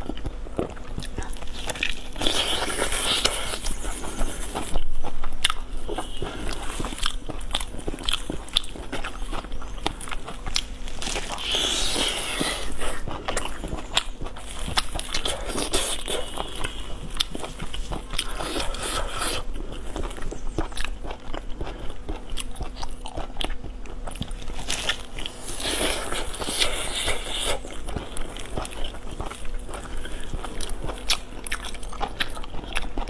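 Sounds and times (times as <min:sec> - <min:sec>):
person chewing meat: 0:00.0 - 0:33.0.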